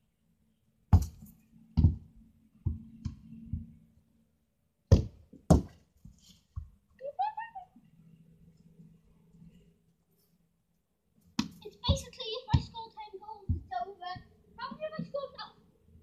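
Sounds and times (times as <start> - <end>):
sharp knocks and thuds: 0.9 - 3.8, 4.9 - 6.8, 11.4 - 12.8, 13.4 - 15.2.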